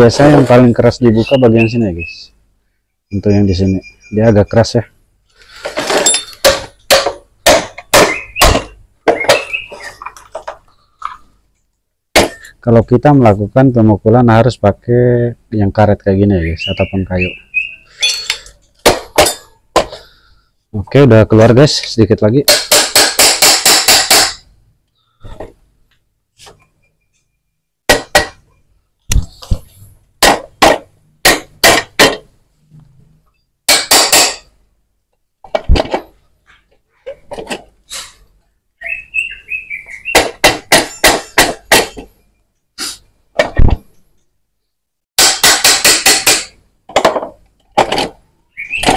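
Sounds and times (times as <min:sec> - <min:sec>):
mallet striking engine case: 0:05.8 - 0:09.9, 0:27.9 - 0:28.4, 0:40.1 - 0:42.1.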